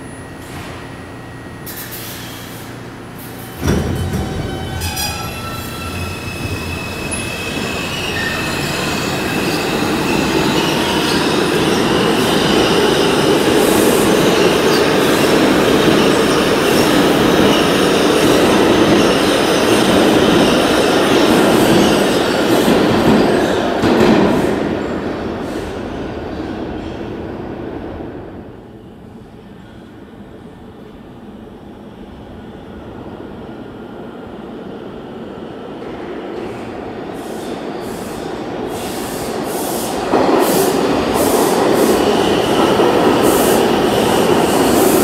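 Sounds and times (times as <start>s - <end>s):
subway train wheels rumbling: 0.0s - 45.0s
wheel squeals: 4.0s - 12.8s.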